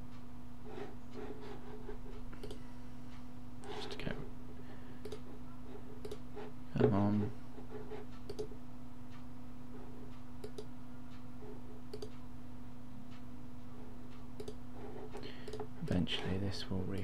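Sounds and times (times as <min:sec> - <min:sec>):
steady electrical hum: 0:00.0 - 0:17.0
computer mouse clicks: 0:02.1 - 0:02.6, 0:05.0 - 0:05.3, 0:06.0 - 0:06.2, 0:08.1 - 0:08.5, 0:10.1 - 0:10.7, 0:11.9 - 0:12.2, 0:14.4 - 0:15.7.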